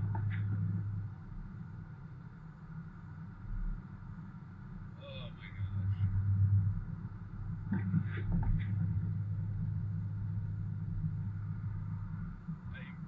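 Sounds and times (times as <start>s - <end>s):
road and engine drone inside vehicle: 0.0s - 13.0s.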